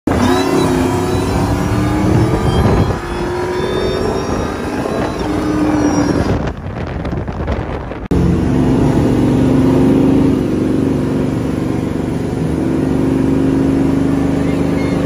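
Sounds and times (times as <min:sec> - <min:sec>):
truck engine at full throttle: 0:00.0 - 0:15.0.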